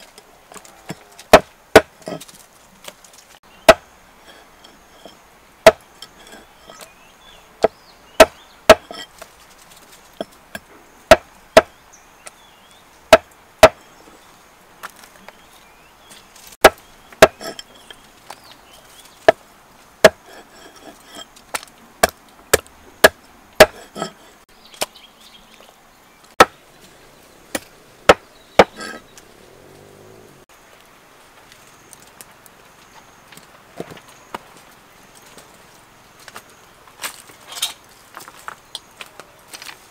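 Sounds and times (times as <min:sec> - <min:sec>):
cleaver chopping on wooden block: 0:00.9 - 0:02.2, 0:03.7 - 0:04.4, 0:05.6 - 0:06.4, 0:07.6 - 0:09.0, 0:10.2 - 0:11.7, 0:13.1 - 0:13.8, 0:16.6 - 0:17.6, 0:20.0 - 0:21.2, 0:22.0 - 0:24.2, 0:27.5 - 0:29.0.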